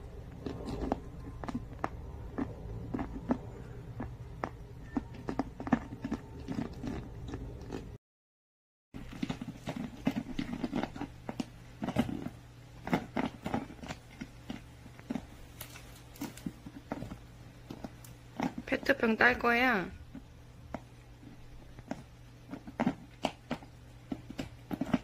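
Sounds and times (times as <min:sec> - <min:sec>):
dog gnawing plastic bottle: 0:09.0 - 0:18.9, 0:20.1 - 0:25.0.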